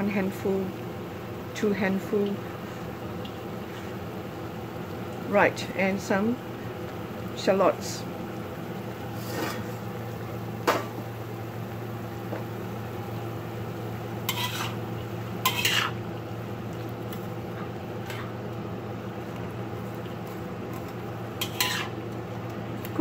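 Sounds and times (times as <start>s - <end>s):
food sizzling: 0.0s - 23.0s
spatula scraping and clanking in wok: 9.2s - 9.8s, 14.2s - 16.0s, 20.3s - 22.0s.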